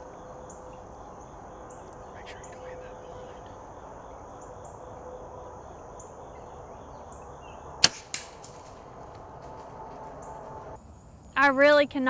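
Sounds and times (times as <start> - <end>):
insects chirping and buzzing: 0.0 - 12.0
bow string snap: 7.8 - 8.8
quieter crack: 7.8 - 10.8.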